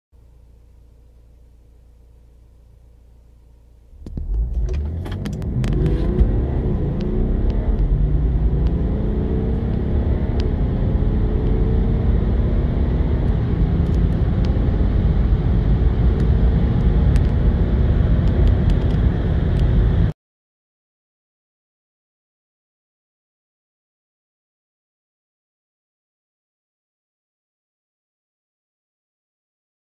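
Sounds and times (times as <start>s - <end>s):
diesel car accelerating: 3.9s - 20.1s.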